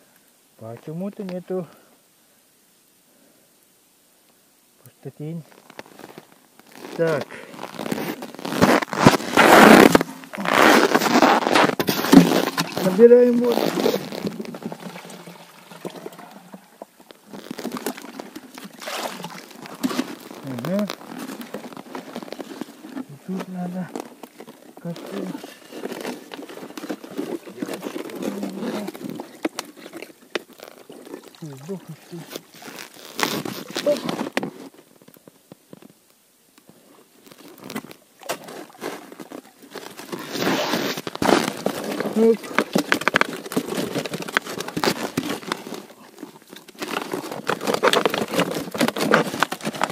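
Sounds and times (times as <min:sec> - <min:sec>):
clothing rustling: 0:05.5 - 0:34.7
plastic bottle rustling: 0:05.5 - 0:35.1, 0:37.2 - 0:49.9
water splashing into plastic container: 0:11.7 - 0:17.1, 0:17.7 - 0:20.2.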